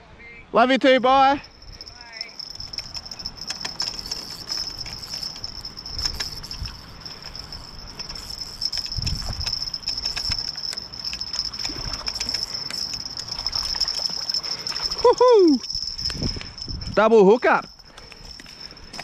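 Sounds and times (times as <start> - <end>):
fishing reel winding: 1.4 - 19.0.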